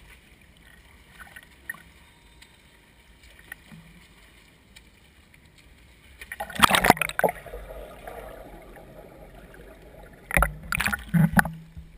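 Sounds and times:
pool water splashing: 0:00.0 - 0:11.9
muffled underwater sound: 0:06.4 - 0:11.9.

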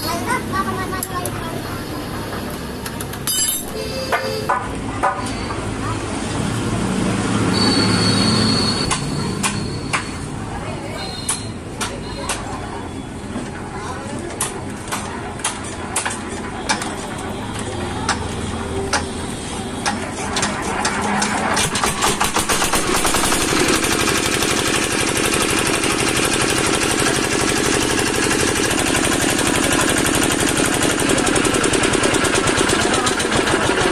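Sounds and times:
diesel engine starting: 0:17.7 - 0:33.9.

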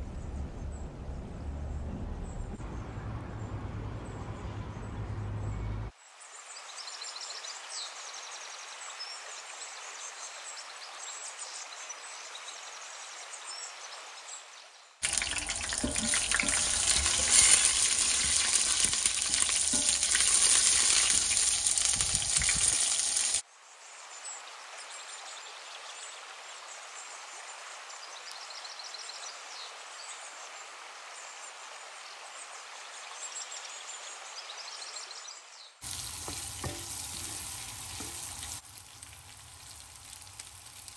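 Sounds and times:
food sizzling in hot oil: 0:15.0 - 0:23.4, 0:35.8 - 0:40.9.

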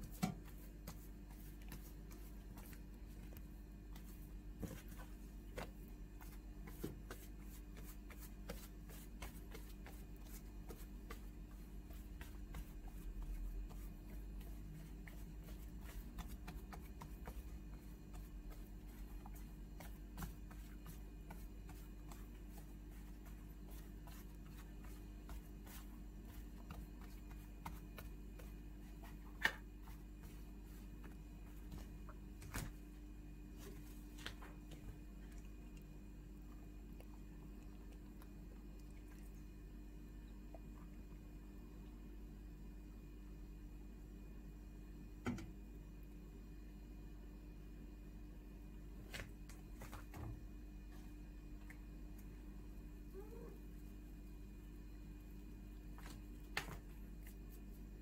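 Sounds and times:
hands patting dough: 0:00.0 - 0:35.2, 0:55.7 - 0:58.0
low steady hum: 0:00.0 - 0:58.0.

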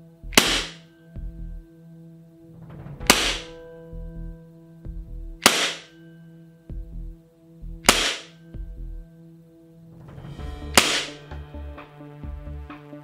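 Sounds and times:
airsoft pistol shots: 0:00.4 - 0:00.8, 0:03.1 - 0:03.5, 0:05.4 - 0:05.9, 0:07.8 - 0:08.4, 0:10.8 - 0:11.1.

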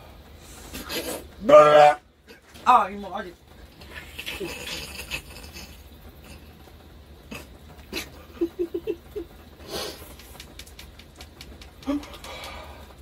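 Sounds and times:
man chuckling: 0:03.8 - 0:06.4, 0:07.3 - 0:09.4
sharp clicks: 0:10.1 - 0:12.7.

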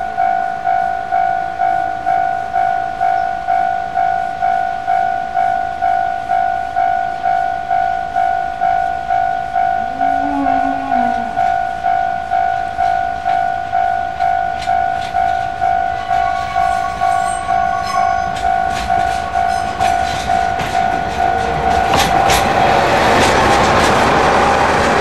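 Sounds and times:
diesel locomotive passing: 0:01.1 - 0:25.0
level crossing bell dinging: 0:07.3 - 0:21.9.

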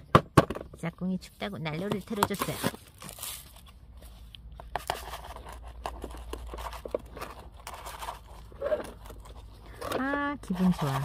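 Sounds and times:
potting mix scraping and rattling: 0:04.6 - 0:11.0.

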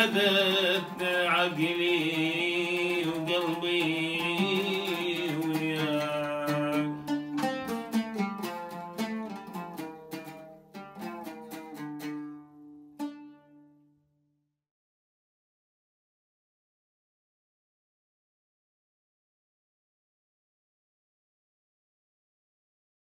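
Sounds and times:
oud plucked with plectrum: 0:00.0 - 0:14.2.

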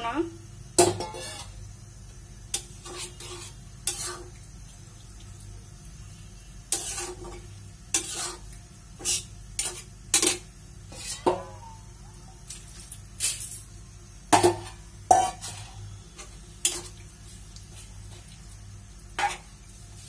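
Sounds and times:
metal spatula scraping a pan: 0:00.8 - 0:01.6, 0:02.5 - 0:04.4, 0:06.7 - 0:11.8, 0:12.5 - 0:13.7, 0:14.4 - 0:18.3, 0:19.2 - 0:20.0.

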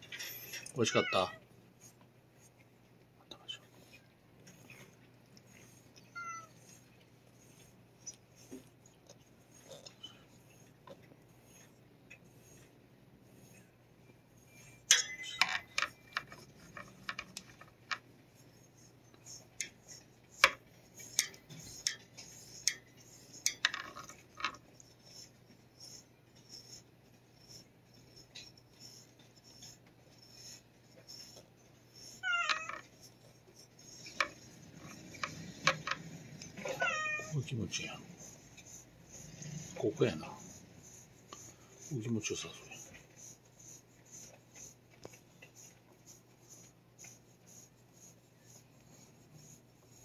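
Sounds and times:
brush clicking and scraping on cage bars: 0:00.0 - 0:50.0
cat meowing: 0:00.8 - 0:01.4, 0:06.0 - 0:06.6, 0:32.2 - 0:32.7, 0:36.6 - 0:37.4.

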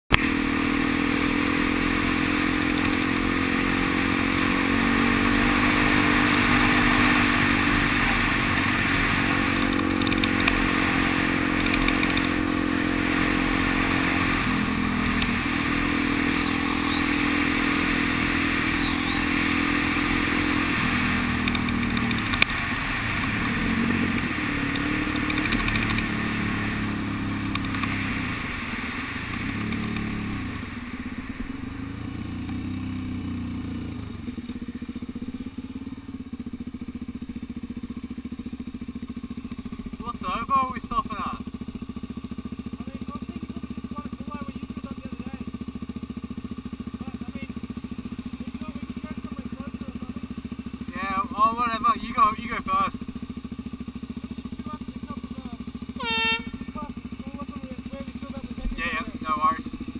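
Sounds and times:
motorcycle engine running: 0:00.1 - 0:59.9.

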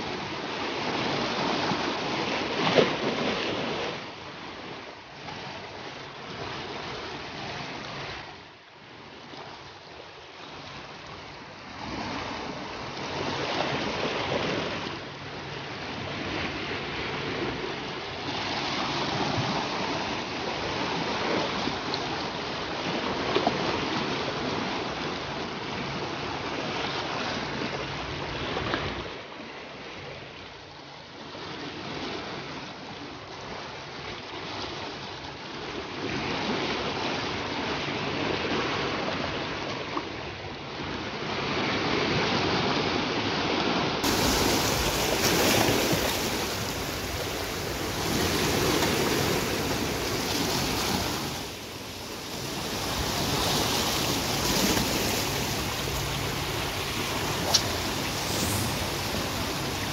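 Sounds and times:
sea waves washing over rocks: 0:43.7 - 0:59.9.

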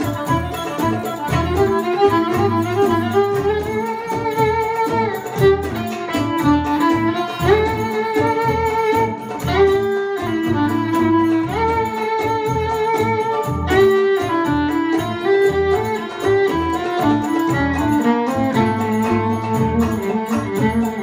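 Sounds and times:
hand drum rhythm: 0:00.0 - 0:21.0
mandolin: 0:00.0 - 0:21.0
violin melody with sliding notes: 0:00.0 - 0:21.0
bass: 0:06.4 - 0:21.0.

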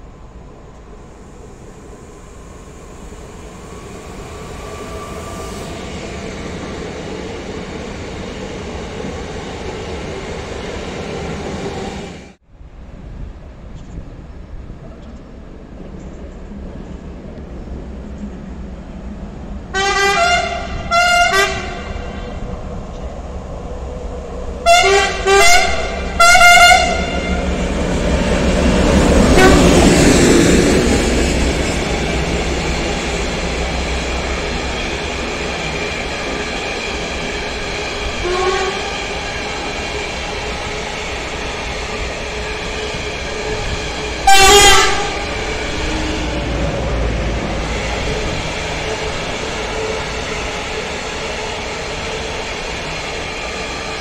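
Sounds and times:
train wheels rumbling on rails: 0:00.0 - 0:54.0
locomotive horn blasts: 0:19.8 - 0:22.3, 0:24.6 - 0:27.4, 0:29.3 - 0:29.9, 0:38.2 - 0:38.9, 0:44.2 - 0:45.3.

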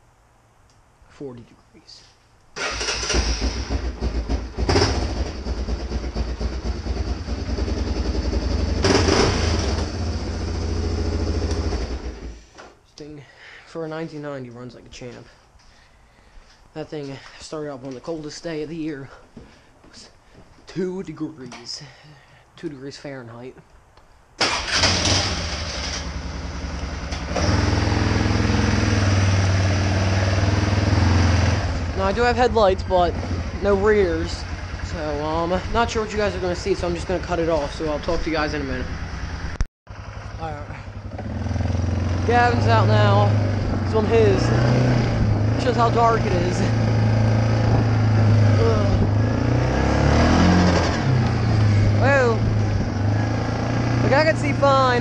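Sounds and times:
four-wheeler engine running: 0:02.6 - 0:12.5, 0:24.4 - 0:55.0
car engine idling: 0:31.8 - 0:49.2.

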